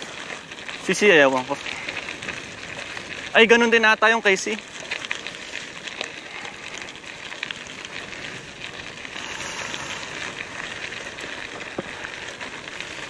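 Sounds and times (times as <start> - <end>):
bike tyres crunching gravel: 0.0 - 13.0
stones ticking: 0.0 - 13.0.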